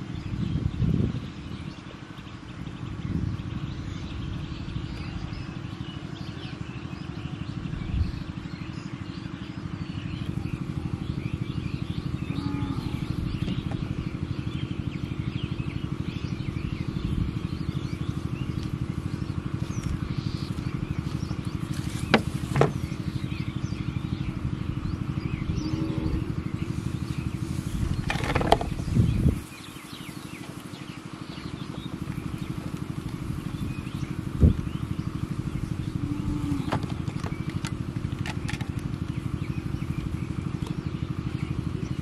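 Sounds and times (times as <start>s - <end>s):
birds chirping faintly: 0.0s - 42.0s
small engine running: 0.0s - 42.0s.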